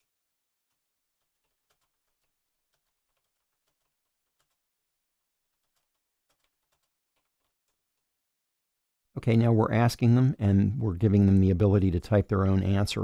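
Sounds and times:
faint irregular ticks: 0.7 - 4.7.

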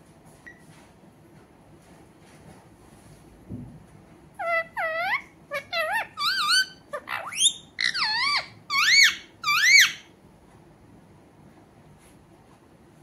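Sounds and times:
parakeet calling: 4.4 - 10.1.

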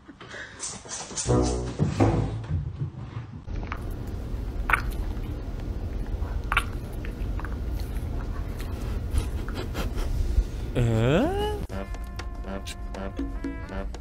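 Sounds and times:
dog mouth smacking and licking: 4.6 - 9.6.

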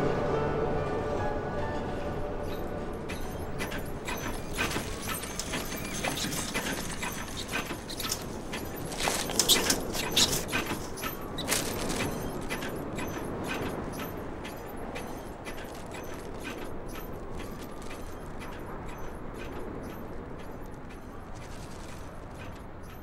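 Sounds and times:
wind blowing: 0.2 - 23.0
paper wrapper flapping and crackling: 4.2 - 12.9, 15.7 - 16.4, 17.2 - 18.0, 21.3 - 22.4.

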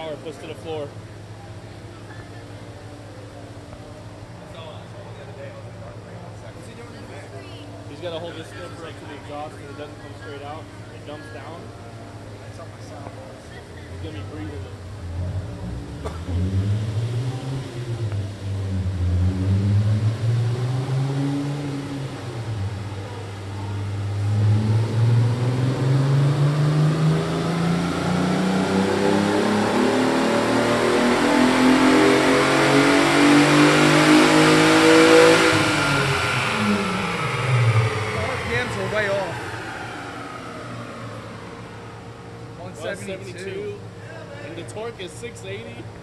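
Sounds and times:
car engine revving: 13.9 - 44.0.

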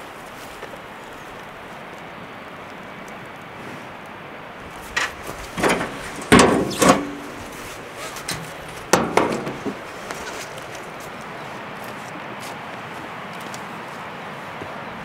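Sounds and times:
metal barrel clanking: 5.0 - 7.6, 8.2 - 10.4.

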